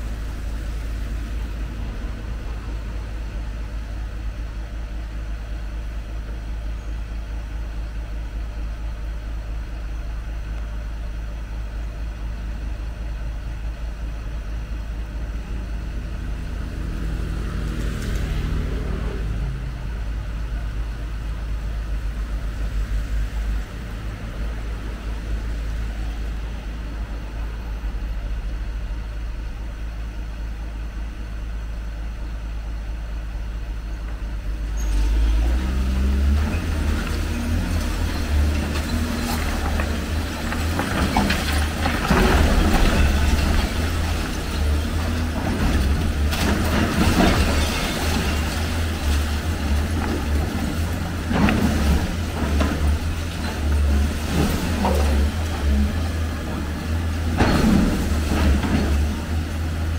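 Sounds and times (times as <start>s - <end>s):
excavator diesel engine revving: 15.5s - 29.4s, 34.2s - 59.9s
concrete and rubble crashing: 36.5s - 59.9s.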